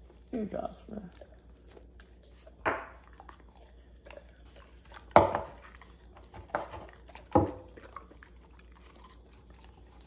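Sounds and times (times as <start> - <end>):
dog crunching a hard treat: 1.2 - 10.0.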